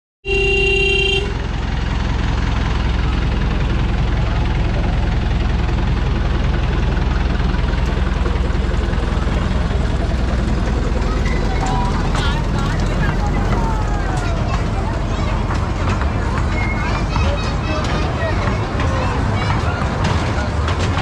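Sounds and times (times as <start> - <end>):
train horn blast: 0.2 - 1.4
train engine running: 0.3 - 21.0.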